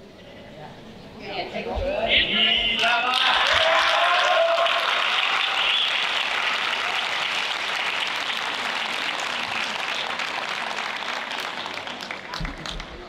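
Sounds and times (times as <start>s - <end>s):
audience applauding: 2.8s - 13.0s.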